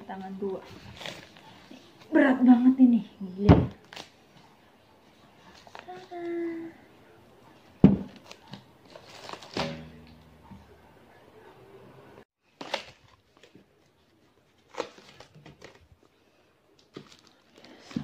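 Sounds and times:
plastic film crinkling: 8.2 - 9.7
heavy pot thumping: 9.5 - 10.7.

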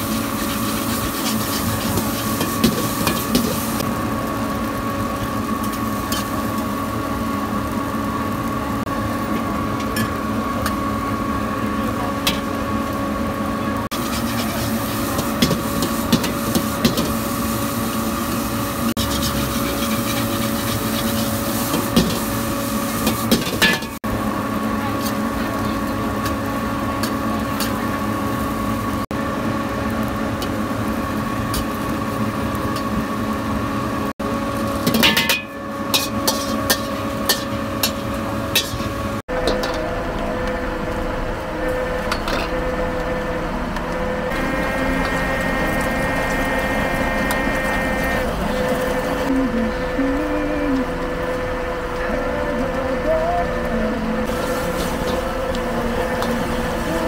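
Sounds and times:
spatula scraping wok: 0.0 - 3.8, 5.5 - 7.0, 13.9 - 24.0, 34.6 - 40.0, 54.3 - 57.0
machine hum: 0.0 - 57.0.

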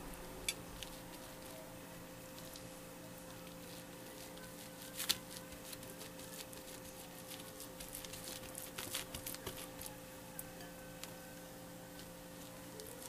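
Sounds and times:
faint steady hum: 0.0 - 13.0
fingers patting sticky rice: 2.3 - 11.3, 11.9 - 13.0.

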